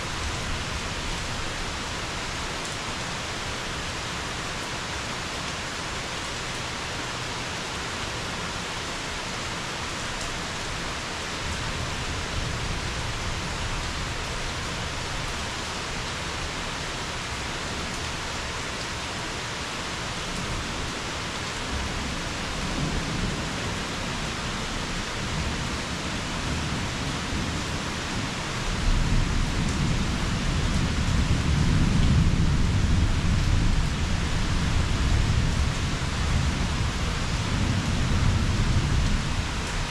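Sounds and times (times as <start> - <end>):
steady rain falling: 0.0 - 39.9
thunder rumbling: 21.7 - 28.0, 28.7 - 39.9.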